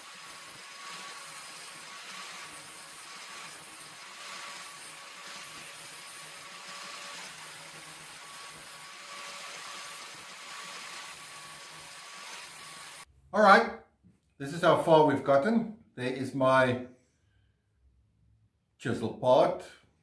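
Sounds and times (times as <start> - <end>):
angle grinder whining: 0.0 - 13.1
steel grinding against disc: 0.0 - 13.1.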